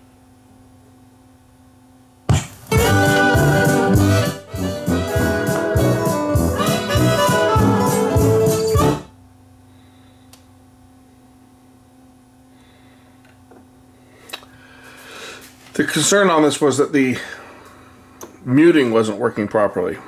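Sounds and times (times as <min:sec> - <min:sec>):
faint steady hum: 0:00.0 - 0:08.1, 0:08.7 - 0:20.0
vinyl record music: 0:02.3 - 0:09.1.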